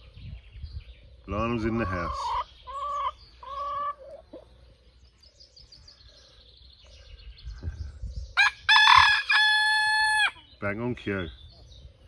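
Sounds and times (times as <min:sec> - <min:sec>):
rooster crowing: 0:08.4 - 0:10.4.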